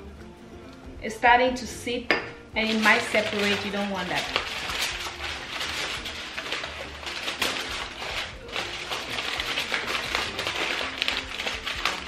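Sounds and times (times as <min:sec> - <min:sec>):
aluminum foil crinkling: 0:02.6 - 0:12.0.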